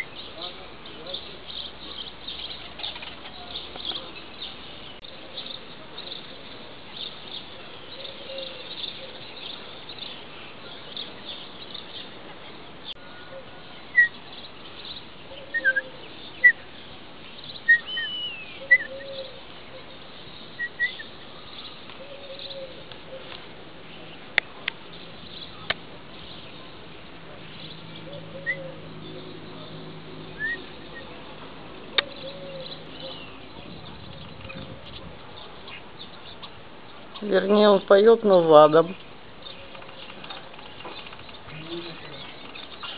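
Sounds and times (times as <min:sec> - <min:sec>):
starling clicks and rattles: 0:39.6 - 0:41.5.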